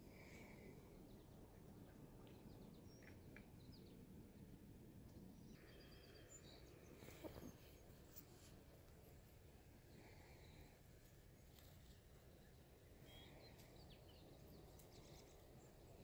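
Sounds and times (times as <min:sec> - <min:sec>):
faint outdoor background noise: 0:00.0 - 0:16.0.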